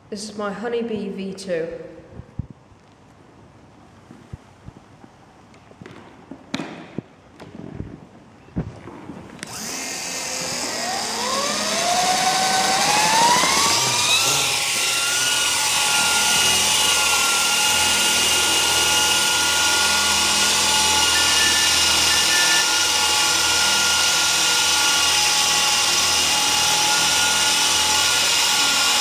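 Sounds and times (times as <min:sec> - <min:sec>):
rc helicopter motor whine: 0:09.4 - 0:29.0.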